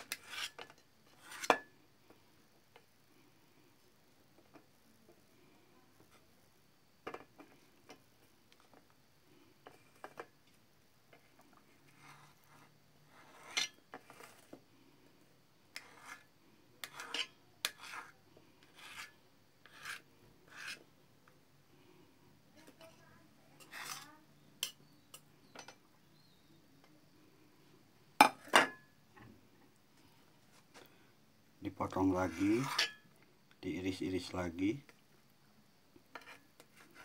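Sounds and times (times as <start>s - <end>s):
knife scraping and tapping plate: 0.0s - 1.8s, 9.6s - 10.3s, 11.9s - 14.5s, 15.7s - 20.8s, 32.3s - 33.0s, 36.1s - 37.0s.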